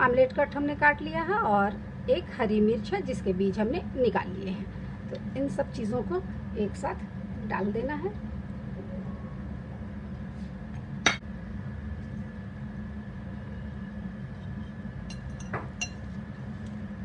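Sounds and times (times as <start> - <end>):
steady low hum: 0.0 - 17.0
plate clinking against bowl: 15.1 - 16.0.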